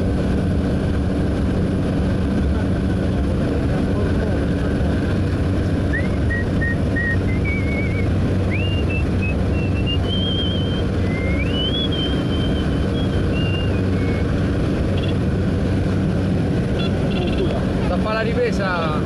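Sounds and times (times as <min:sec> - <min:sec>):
propeller plane engine drone: 0:00.0 - 0:19.0
person whistling a tune: 0:05.9 - 0:14.3.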